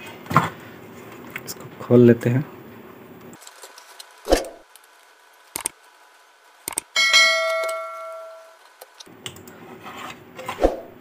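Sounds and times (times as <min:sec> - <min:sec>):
metallic clang ringing: 0:07.0 - 0:08.6.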